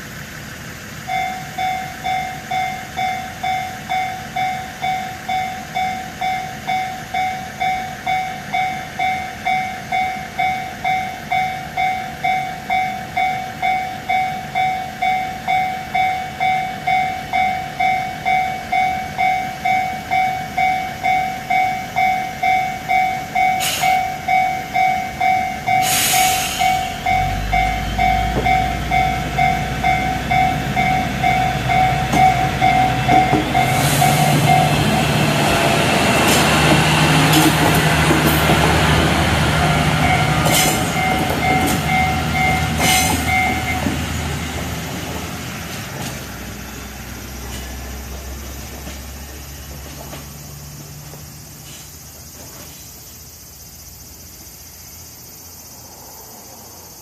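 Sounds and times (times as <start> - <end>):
diesel railcar engine: 0.0 - 57.0
air hiss burst: 23.6 - 24.0, 25.8 - 27.0, 33.6 - 34.5
level crossing bell ringing: 26.6 - 33.8.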